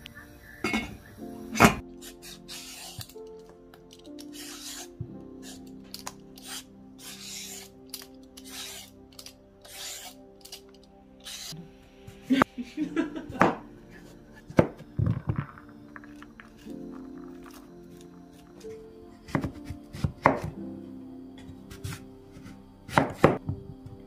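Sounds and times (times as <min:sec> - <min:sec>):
soft background music: 0:00.0 - 0:24.0
vegetable peeler rasping: 0:02.0 - 0:03.2, 0:04.2 - 0:10.6, 0:11.2 - 0:11.6.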